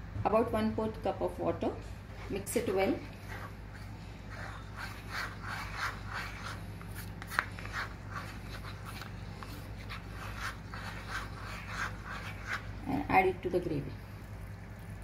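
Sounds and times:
spoon scraping plastic bowl: 0:03.0 - 0:12.8.

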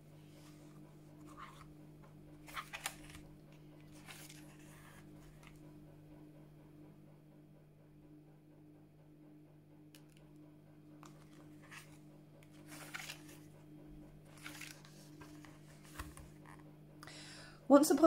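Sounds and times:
faint steady hum: 0:00.0 - 0:18.0
book pages rustling: 0:00.3 - 0:01.8, 0:02.4 - 0:05.7, 0:11.0 - 0:16.7.

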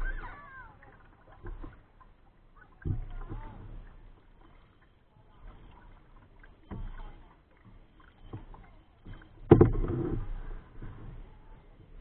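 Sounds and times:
paddle strokes in water: 0:00.0 - 0:12.0.

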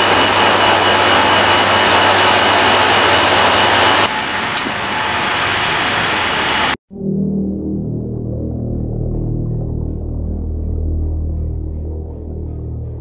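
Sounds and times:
loud rushing machine noise: 0:00.0 - 0:06.8
low hum: 0:06.8 - 0:13.0.

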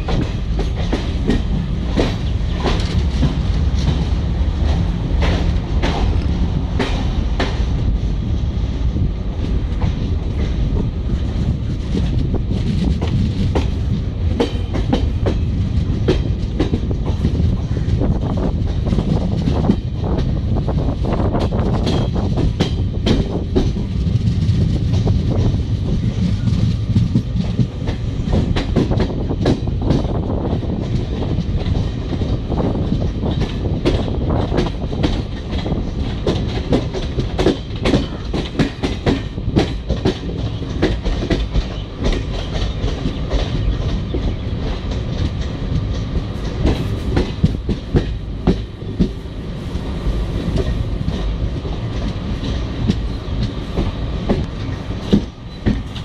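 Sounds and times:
train rumble inside coach: 0:00.0 - 0:56.0.

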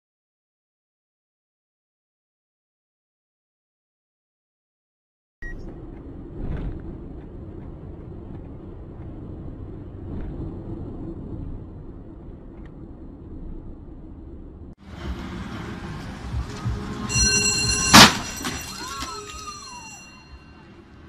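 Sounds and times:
street traffic rumble: 0:05.4 - 0:21.0.

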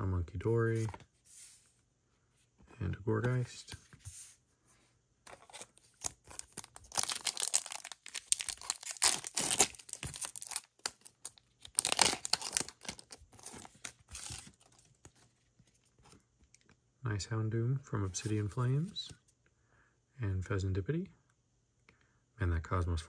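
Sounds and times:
card pack wrapper tearing: 0:05.3 - 0:14.7.

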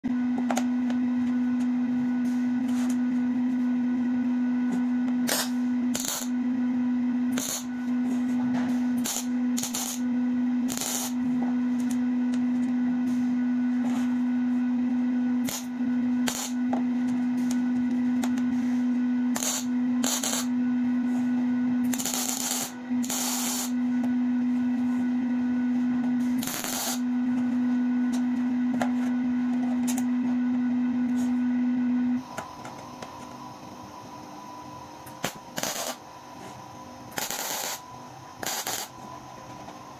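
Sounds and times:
steady hum: 0:00.0 - 0:39.9
welding arc crackling: 0:05.3 - 0:06.4, 0:07.4 - 0:07.7, 0:09.0 - 0:10.1, 0:10.7 - 0:11.2, 0:15.4 - 0:16.6, 0:19.4 - 0:20.5, 0:21.9 - 0:23.7, 0:26.4 - 0:27.0, 0:35.2 - 0:36.0, 0:37.2 - 0:37.8, 0:38.4 - 0:38.9.

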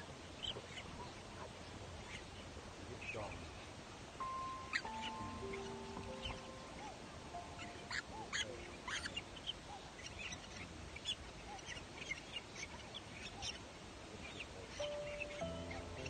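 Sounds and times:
chicks squeaky calls: 0:04.2 - 0:13.6, 0:14.8 - 0:16.0.

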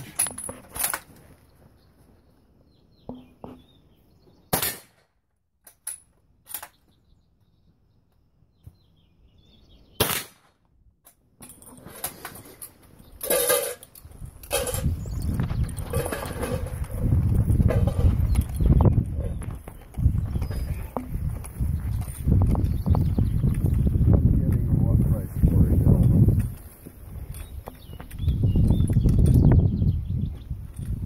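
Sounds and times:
rifle shots: 0:04.5 - 0:05.0, 0:10.0 - 0:10.5.

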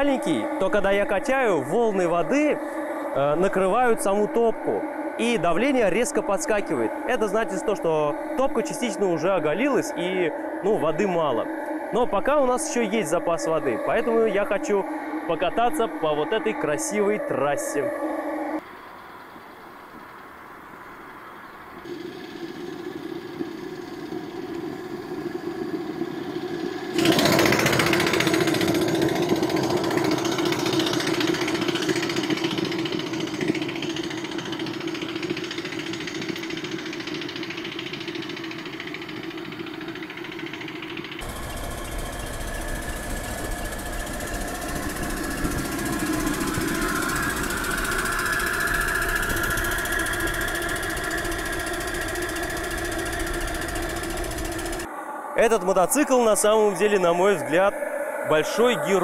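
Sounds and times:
steam engine chuffing: 0:00.0 - 0:17.3, 0:26.6 - 0:54.9
low wind rumble: 0:17.9 - 0:27.0, 0:41.2 - 0:59.0
steam hissing: 0:21.8 - 0:59.0.

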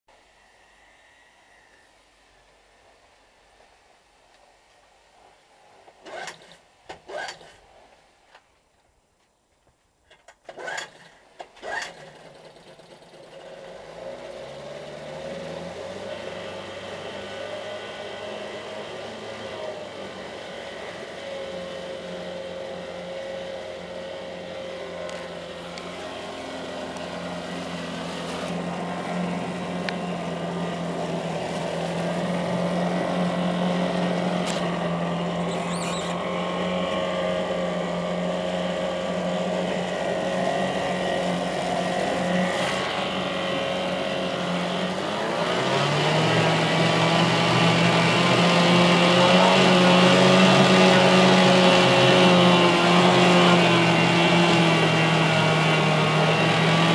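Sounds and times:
outboard motor running: 0:11.6 - 0:56.9
propeller churning water: 0:11.6 - 0:56.9.

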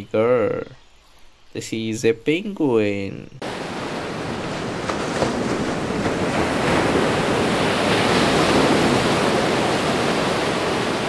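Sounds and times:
ocean waves washing on beach: 0:03.4 - 0:11.0.

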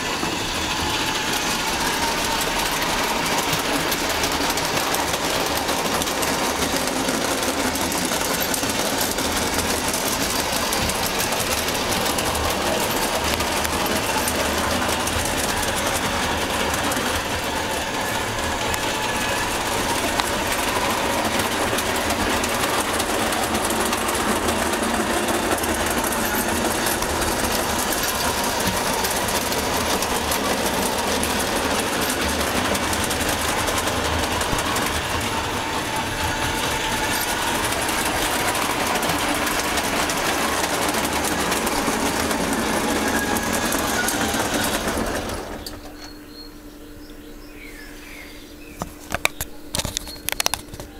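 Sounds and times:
model train running on track: 0:00.0 - 0:50.9.

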